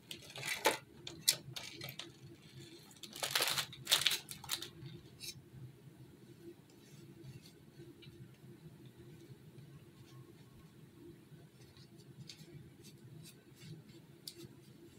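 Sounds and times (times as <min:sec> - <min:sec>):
plastic bag crinkling: 0:02.8 - 0:04.8.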